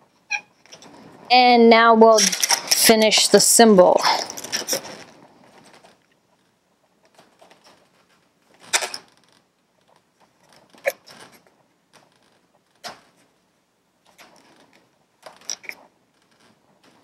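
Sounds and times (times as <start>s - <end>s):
marker squeaking on a balloon: 0.2s - 0.6s.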